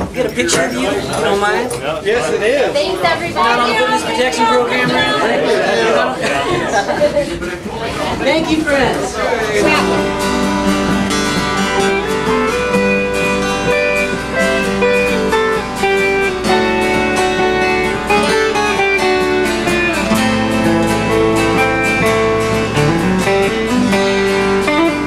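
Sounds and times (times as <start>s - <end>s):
acoustic guitar strumming: 0.0s - 25.0s
electric guitar picking: 8.1s - 25.0s.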